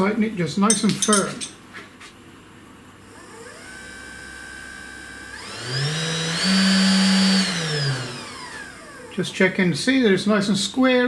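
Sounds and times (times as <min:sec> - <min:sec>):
router spindle whine: 0:03.0 - 0:10.0.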